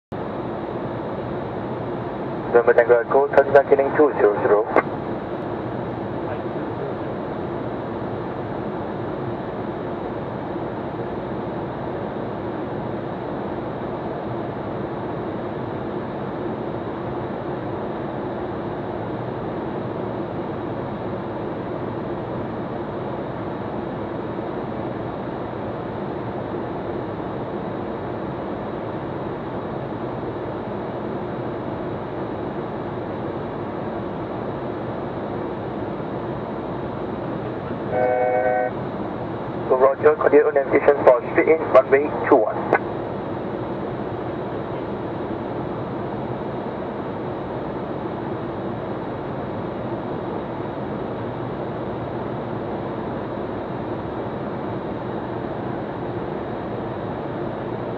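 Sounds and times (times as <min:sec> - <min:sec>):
jet engine drone: 0:00.1 - 0:57.9
jet cockpit airflow rush: 0:39.7 - 0:42.9.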